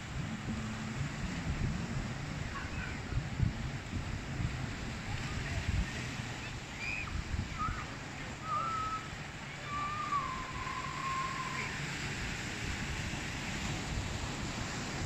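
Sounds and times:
surf washing: 0.0 - 15.0
wind on microphone: 0.0 - 15.0
thin whistled tones: 6.4 - 11.9.

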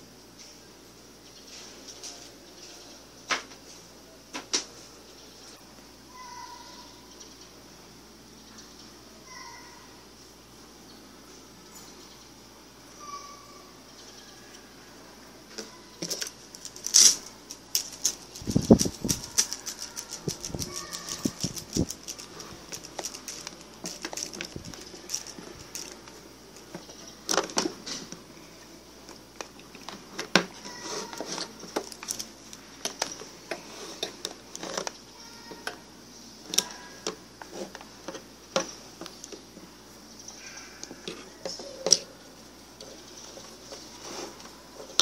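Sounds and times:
steady high-pitched hiss: 0.0 - 45.0
faint voices: 13.0 - 26.8.

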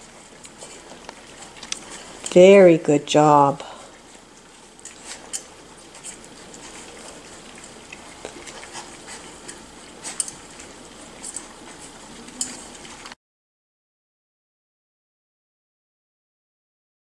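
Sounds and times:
puppies eating from metal bowl: 0.0 - 13.2.

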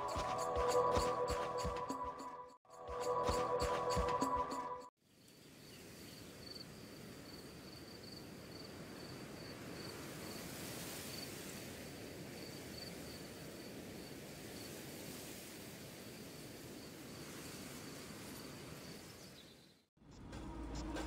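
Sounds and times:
music: 0.0 - 4.9, 20.1 - 21.0
insect chirping: 5.2 - 10.4, 16.0 - 21.0.

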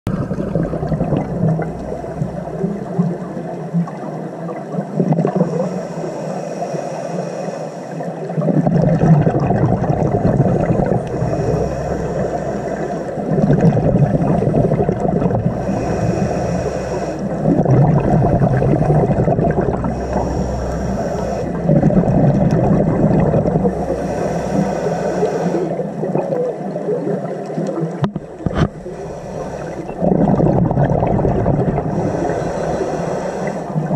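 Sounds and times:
exhale bubbling underwater: 0.1 - 6.2, 8.1 - 33.9
regulator inhale hiss: 5.4 - 8.3, 11.0 - 13.3, 15.5 - 18.5, 19.8 - 21.8, 23.6 - 26.0, 28.8 - 30.1, 31.8 - 33.9.

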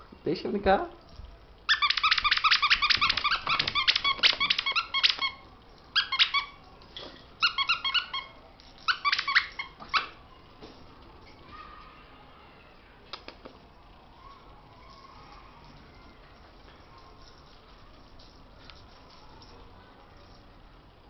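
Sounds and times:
dog toy squeaking: 1.7 - 6.7, 7.4 - 10.2.

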